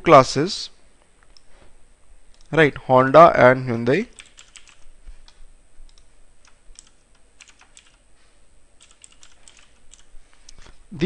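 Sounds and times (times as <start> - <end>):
keyboard typing: 4.1 - 8.0, 8.8 - 10.1.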